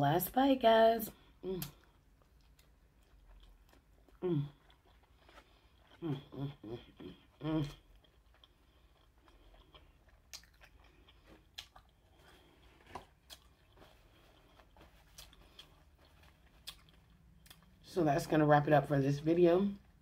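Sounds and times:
person humming: 4.2s - 4.5s, 6.0s - 7.8s
mouth chewing wet clicks: 7.8s - 12.0s.

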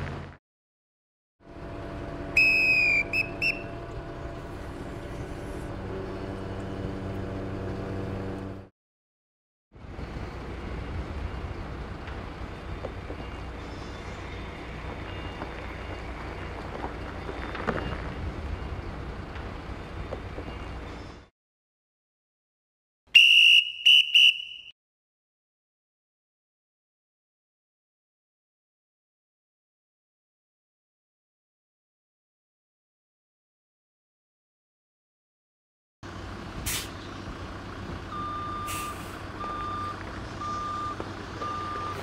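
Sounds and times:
crane engine running: 1.4s - 8.7s, 9.8s - 21.3s, 36.0s - 42.0s
whistle blasts: 2.4s - 3.7s, 23.1s - 24.8s.

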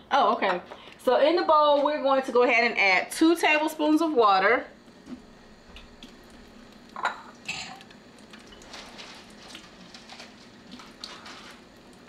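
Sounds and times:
dishes clattering: 7.0s - 7.8s.

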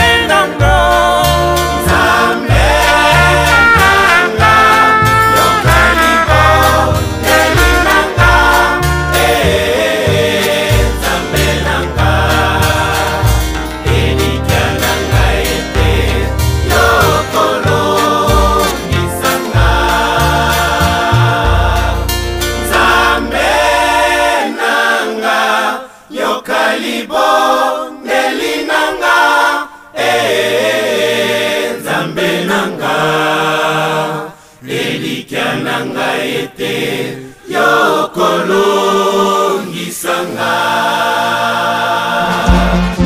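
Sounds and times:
choir singing: 0.0s - 43.0s
deep bass: 0.6s - 24.0s, 42.3s - 43.0s.

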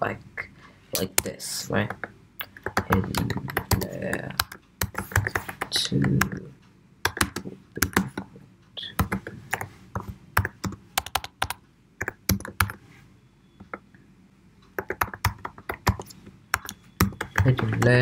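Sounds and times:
typing on keyboard: 1.8s - 6.4s, 7.0s - 8.3s, 9.0s - 12.8s, 14.8s - 18.0s.

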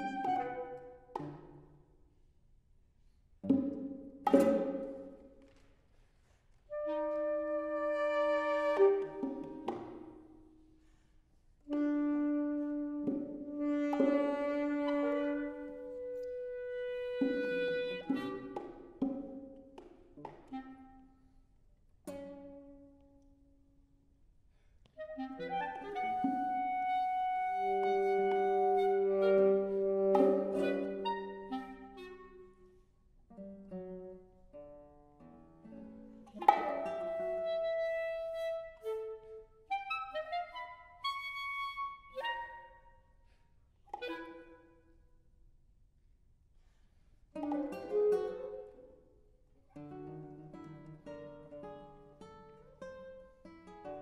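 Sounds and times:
clarinet and saxophone playing: 0.0s - 1.1s, 6.7s - 9.7s, 11.6s - 18.7s, 20.4s - 21.4s, 24.9s - 32.8s, 36.3s - 43.0s, 43.9s - 45.0s
plucked classical guitar notes: 3.4s - 5.4s, 22.0s - 23.5s, 25.2s - 32.7s, 33.3s - 39.4s, 47.3s - 49.0s, 49.7s - 54.0s
held instrument notes: 6.6s - 21.5s, 25.0s - 34.8s, 35.6s - 43.0s.

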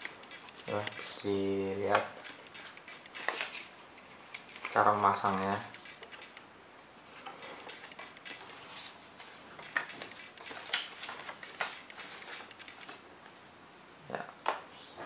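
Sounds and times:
clicks and taps on cardboard: 5.3s - 6.4s.

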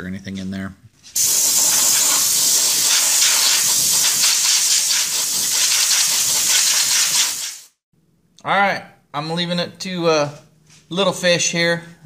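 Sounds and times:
compressed air hissing from nozzle: 1.2s - 7.8s.

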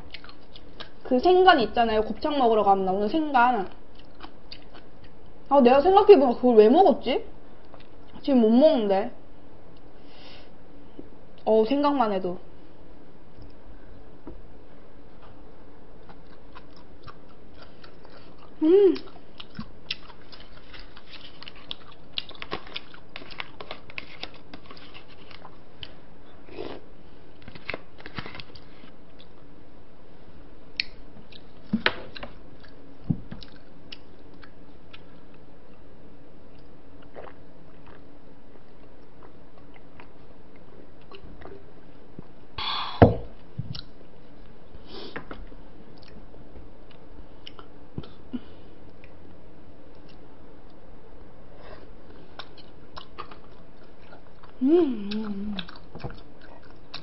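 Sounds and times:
chewing and biting: 0.0s - 1.0s, 16.0s - 26.0s, 52.4s - 57.0s
faint steady hum: 0.0s - 57.0s.

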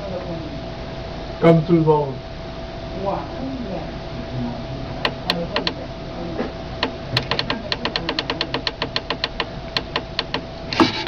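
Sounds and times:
faint steady hum: 0.0s - 11.0s
keypad clicking: 6.8s - 11.0s.

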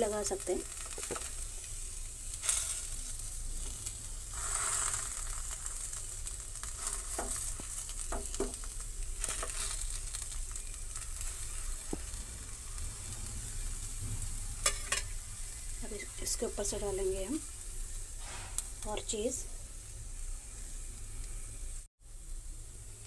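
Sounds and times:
food sizzling in a pan: 0.0s - 23.0s
metal spatula scraping a pan: 14.5s - 15.2s.

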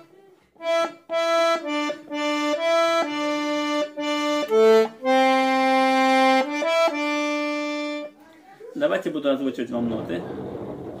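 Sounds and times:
button accordion melody: 0.0s - 8.2s.

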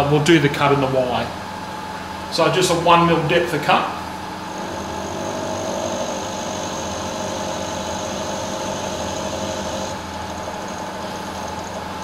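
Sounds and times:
milling machine spindle hum: 4.0s - 12.0s
high cutting whine: 4.3s - 11.8s.

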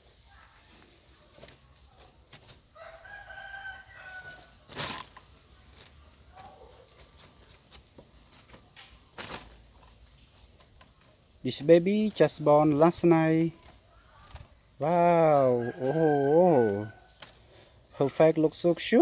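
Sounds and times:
small clicks and rustles: 0.2s - 2.7s, 4.2s - 11.2s, 13.4s - 14.6s
rooster crowing: 2.7s - 4.6s, 15.3s - 17.2s.

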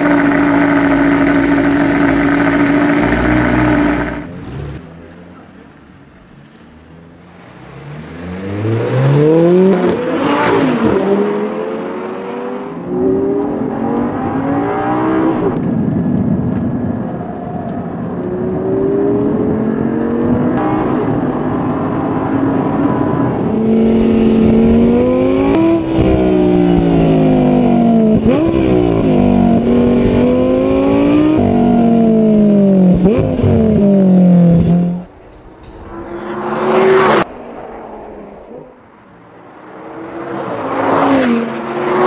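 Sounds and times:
car accelerating past: 7.2s - 15.6s, 18.8s - 35.1s, 35.8s - 38.8s, 39.6s - 42.0s
sports car engine revving: 23.4s - 35.1s
car engine shifting gears: 23.4s - 37.3s.

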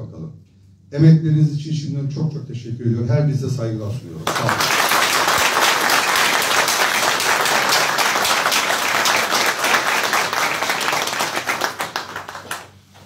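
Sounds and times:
crowd applauding: 4.3s - 12.8s.

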